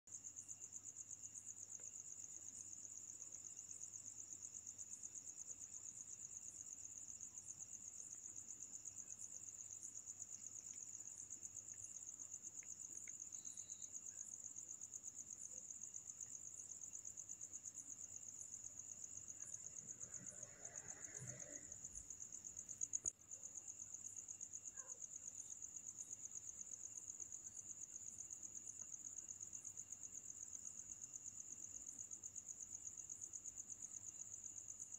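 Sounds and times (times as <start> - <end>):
high-pitched insect trill: 8.8 - 23.1.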